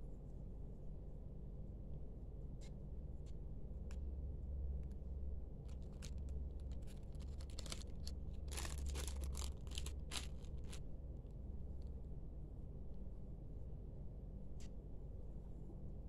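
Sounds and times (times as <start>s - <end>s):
low steady hum: 0.0s - 16.0s
fabric flags rustling: 6.7s - 10.8s.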